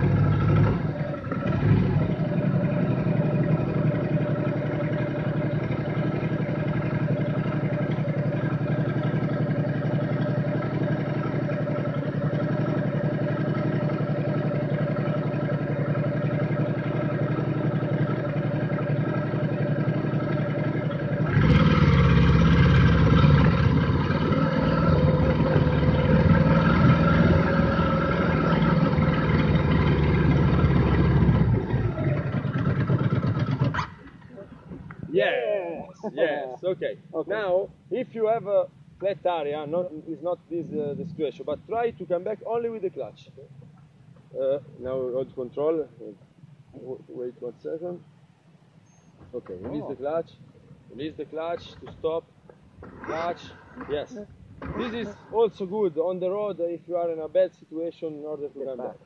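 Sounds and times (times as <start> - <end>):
motorcycle engine running: 0.0 - 34.4.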